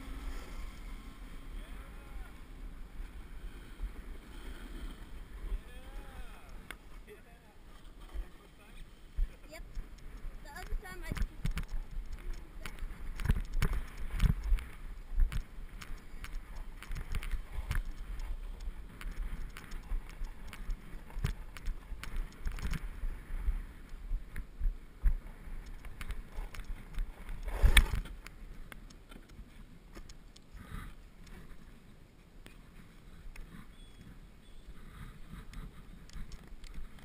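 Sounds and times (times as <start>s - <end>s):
snowboard scraping over snow: 0.0s - 2.0s, 27.4s - 28.1s.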